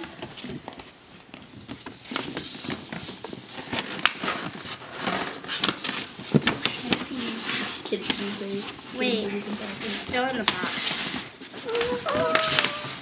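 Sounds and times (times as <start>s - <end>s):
tissue paper rustling: 0.0s - 13.0s.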